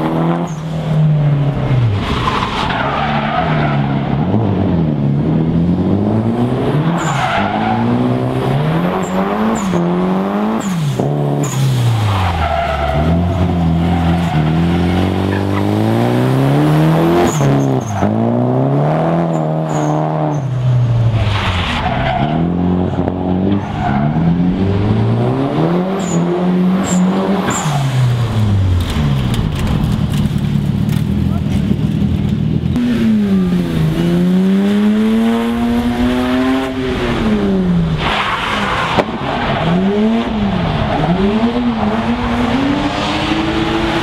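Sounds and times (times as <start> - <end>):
car engine revving: 0.0 - 44.0.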